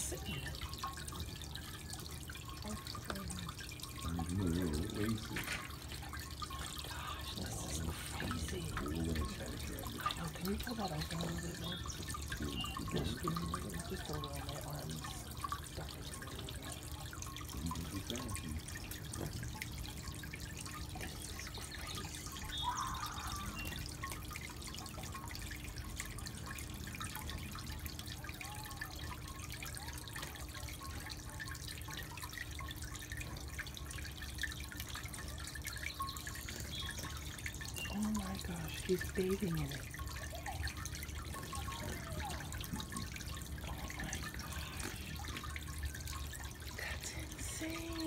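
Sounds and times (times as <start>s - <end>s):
fountain water trickling: 0.0s - 48.0s.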